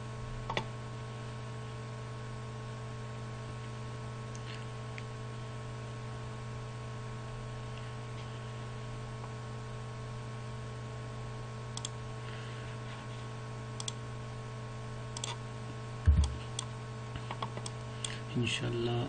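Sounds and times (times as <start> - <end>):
steady electrical hum: 0.0 - 19.0
computer mouse buttons clicking: 15.2 - 15.4
dull low thump: 16.1 - 16.4.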